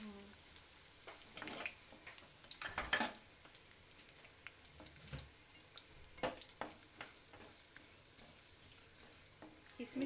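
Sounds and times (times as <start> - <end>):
faint sizzle of frying: 0.0 - 10.0
wooden spatula scraping a pan: 6.2 - 10.0.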